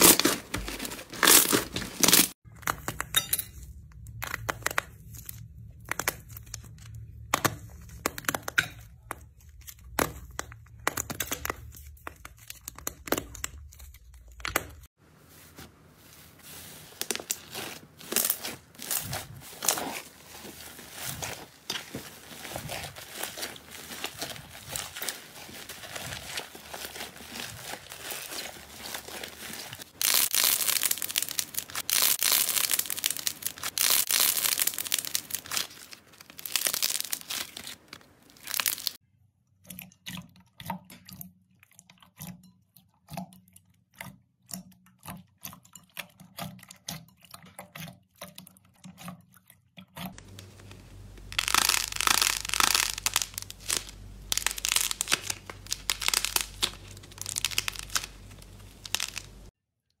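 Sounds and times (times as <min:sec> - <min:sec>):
slime crackling and popping: 0:17.0 - 0:39.0, 0:50.2 - 0:59.5
low steady hum: 0:50.2 - 0:59.5.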